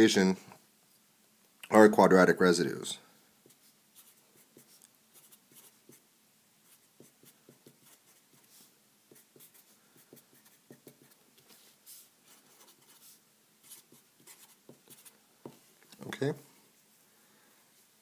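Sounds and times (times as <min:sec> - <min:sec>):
marker writing on paper: 0:03.4 - 0:06.0, 0:06.6 - 0:15.6.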